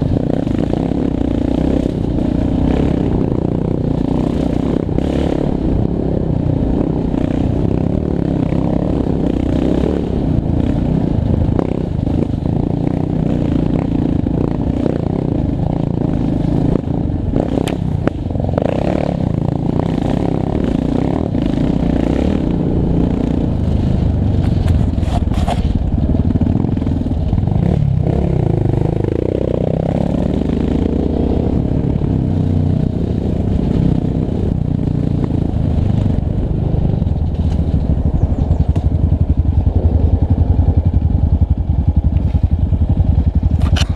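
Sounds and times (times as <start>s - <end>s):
atv engine running under load: 0.0s - 43.9s
knocks and clatter over bumps: 23.1s - 28.2s, 35.3s - 43.9s.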